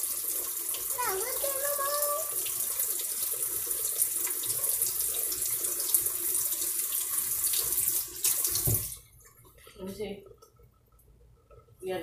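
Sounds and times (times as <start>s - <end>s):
tap running into sink: 7.4s - 9.0s.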